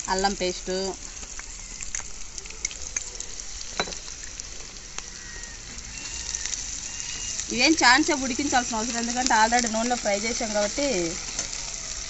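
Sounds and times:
onions sizzling in oil: 0.0s - 12.0s
spoon tapping a pan: 3.8s - 4.1s.

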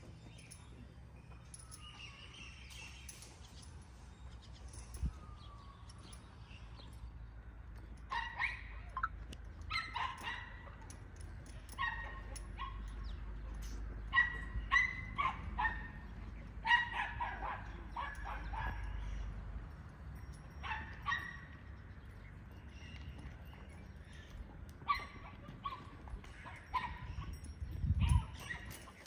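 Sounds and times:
dog barking: 9.7s - 10.8s, 11.8s - 12.9s, 14.1s - 16.0s, 16.6s - 19.0s.

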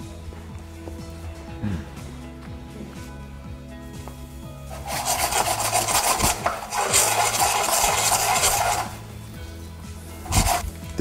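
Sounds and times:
dough hissing in a frying pan: 4.7s - 9.0s, 10.2s - 10.7s.

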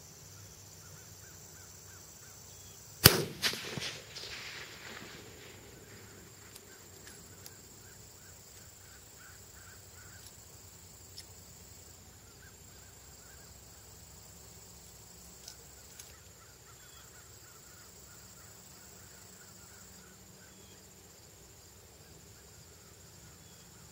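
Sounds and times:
faint clicks: 3.0s - 7.6s.

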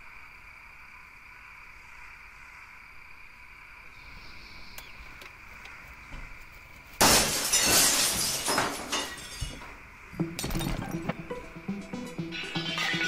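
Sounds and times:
faint steady hum: 0.0s - 13.0s
small clicks: 4.7s - 5.8s
glass shards tinkling: 7.0s - 11.1s, 12.6s - 13.0s
glass crashing: 7.0s - 11.4s, 12.3s - 13.0s.

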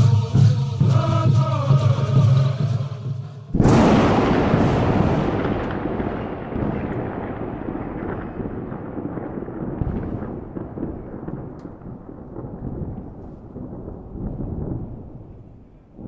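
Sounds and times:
deep rumbling: 3.5s - 16.0s
faint crackles: 5.5s - 16.0s.

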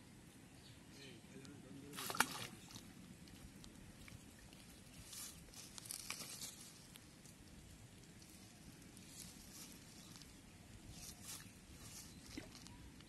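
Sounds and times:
dry plant litter crackling: 4.5s - 7.2s, 8.0s - 12.8s
plant litter rustling: 4.9s - 7.0s.

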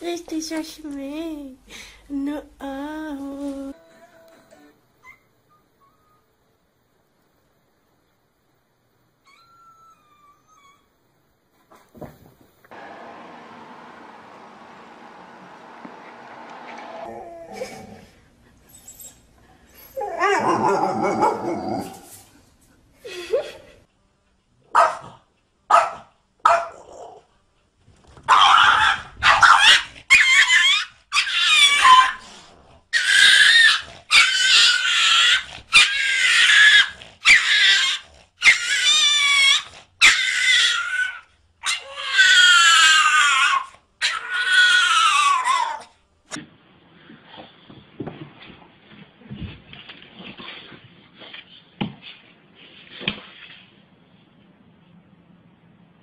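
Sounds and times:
dogs barking and growling: 12.7s - 18.5s, 20.0s - 22.2s, 24.6s - 27.3s, 28.3s - 46.0s
small dog yapping: 25.7s - 27.2s, 28.3s - 32.2s, 32.9s - 45.9s.

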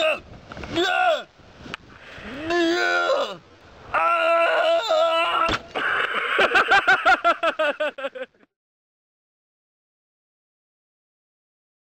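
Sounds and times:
man yelling: 0.0s - 1.3s, 2.3s - 5.6s.

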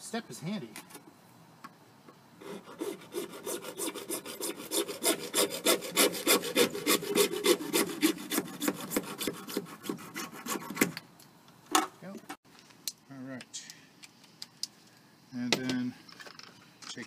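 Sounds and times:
hand saw cutting pipe: 2.4s - 11.0s.

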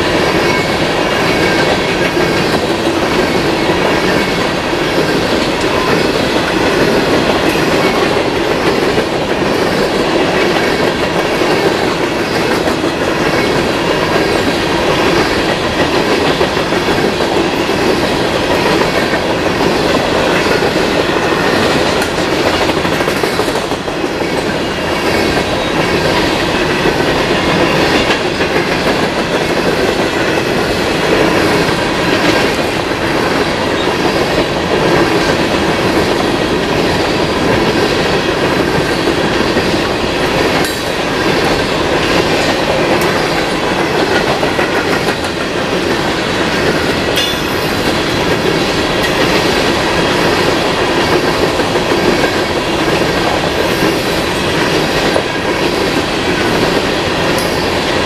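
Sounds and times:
train wheels clattering over rail joints: 0.0s - 58.0s.

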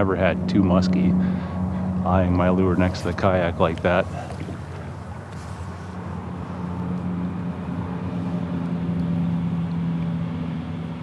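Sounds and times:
distant engine hum: 0.0s - 11.0s.

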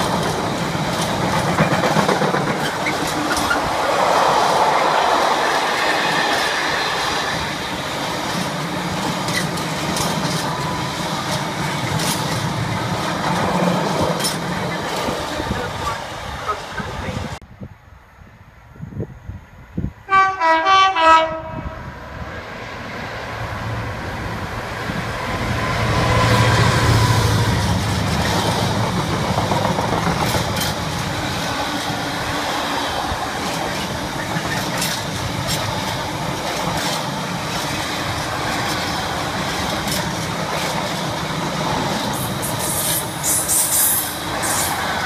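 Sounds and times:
wheels clicking over rail joints: 0.0s - 17.1s, 27.4s - 45.0s
train wagons rumbling past: 0.0s - 17.4s, 20.1s - 45.0s
freight train horn blasts: 20.1s - 21.9s.

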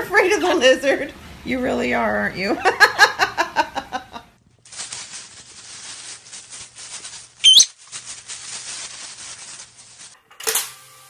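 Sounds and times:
crackling rustle: 4.6s - 10.2s
bird chirp: 7.4s - 7.7s.

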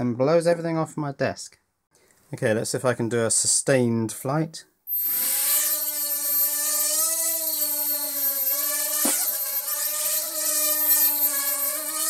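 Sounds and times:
quadcopter propellers buzzing: 4.9s - 12.0s.

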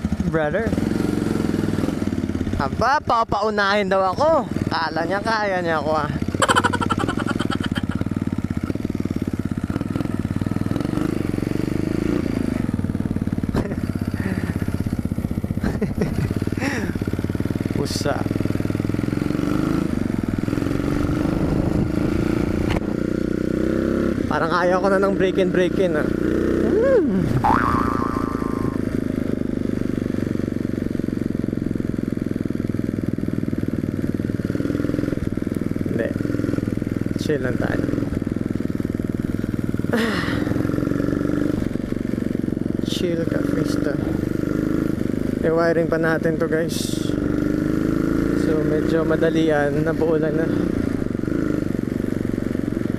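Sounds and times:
motorcycle engine running: 0.0s - 52.9s
rising tone: 26.6s - 28.9s.

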